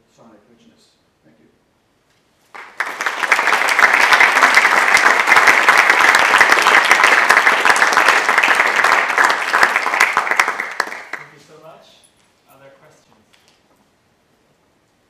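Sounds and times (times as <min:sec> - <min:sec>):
audience applauding: 0:02.5 - 0:11.4.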